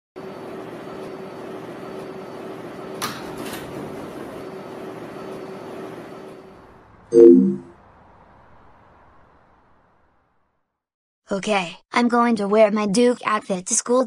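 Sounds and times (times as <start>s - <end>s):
subway car interior hum: 0.2s - 10.8s
sliding doors opening clunk: 2.9s - 4.4s.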